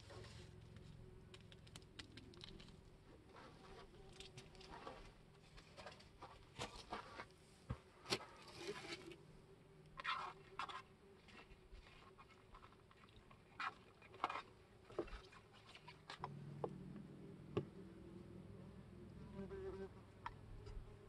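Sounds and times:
soft clicks and crackles: 0:00.5 - 0:02.9.

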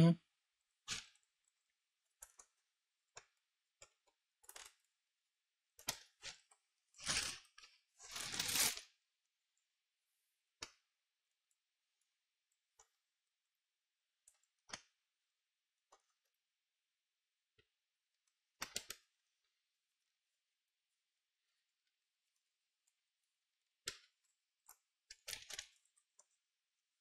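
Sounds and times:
small parts clicking and tapping: 0:00.9 - 0:05.0, 0:17.6 - 0:19.2, 0:23.8 - 0:26.5.

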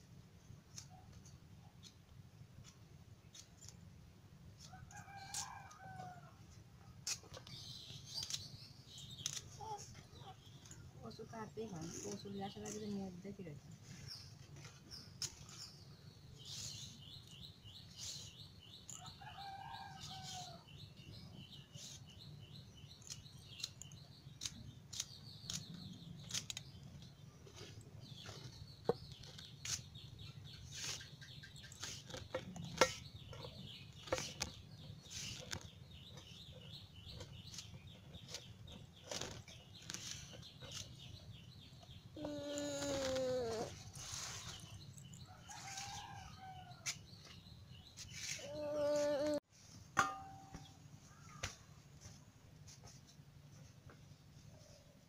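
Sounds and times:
stems snapping by hand: 0:07.0 - 0:10.8, 0:23.0 - 0:29.8, 0:51.3 - 0:51.6.

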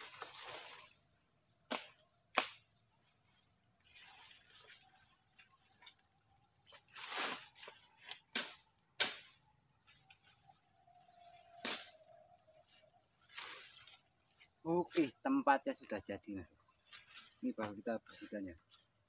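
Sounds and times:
insects droning: 0:00.0 - 0:19.0
brush rustling: 0:06.7 - 0:08.2.

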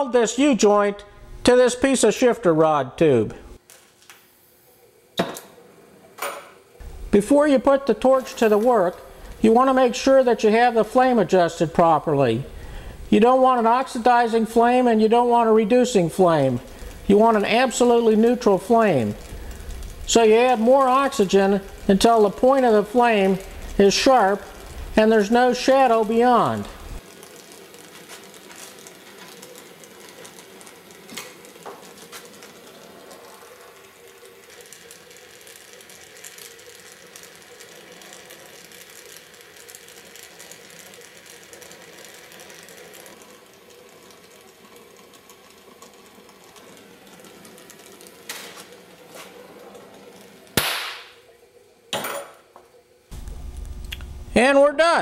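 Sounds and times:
torch flame hissing and crackling: 0:03.4 - 0:51.9, 0:53.0 - 0:54.4.

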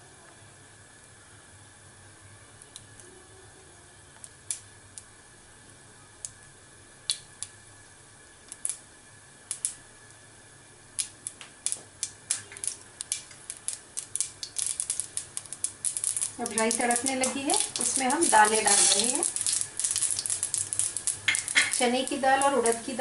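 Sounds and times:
seeds popping in hot oil: 0:04.1 - 0:23.0.

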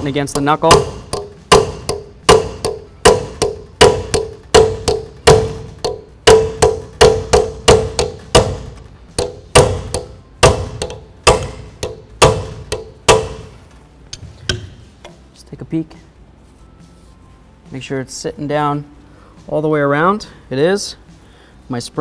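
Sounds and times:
hammer striking metal punch: 0:00.0 - 0:13.6, 0:14.4 - 0:14.9.

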